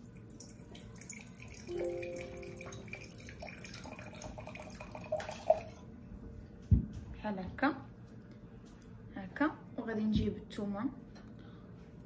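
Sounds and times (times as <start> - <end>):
liquid pouring into glass jar: 0.0 - 5.8
short steady tone: 1.7 - 2.9.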